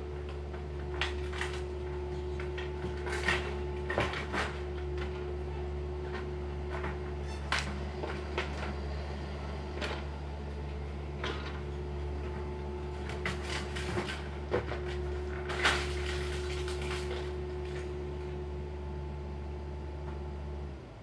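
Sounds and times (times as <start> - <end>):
machinery engine hum: 0.0 - 21.0
wooden debris knocking and clattering: 13.0 - 17.9.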